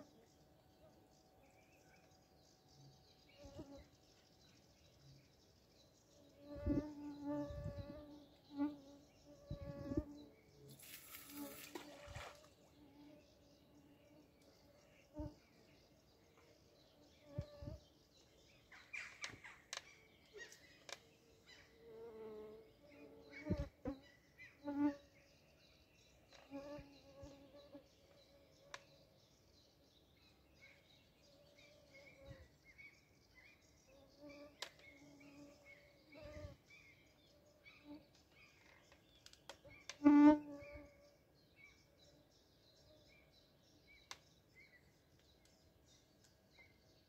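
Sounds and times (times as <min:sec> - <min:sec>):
faint bird chirps: 0:00.0 - 0:47.0
faint insect buzzing: 0:06.1 - 0:15.5, 0:16.8 - 0:17.9, 0:21.7 - 0:28.9, 0:39.7 - 0:41.1.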